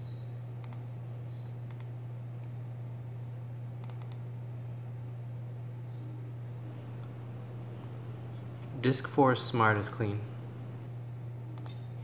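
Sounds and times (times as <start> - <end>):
steady low hum: 0.0 - 12.0
computer mouse clicking: 0.6 - 0.9, 1.7 - 2.6, 3.8 - 4.2, 11.6 - 11.8.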